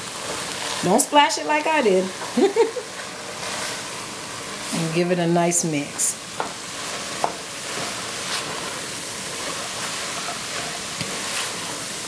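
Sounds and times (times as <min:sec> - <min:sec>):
food sizzling in a pot: 0:00.0 - 0:12.0
wooden spoon scraping: 0:03.0 - 0:04.9, 0:06.4 - 0:12.0.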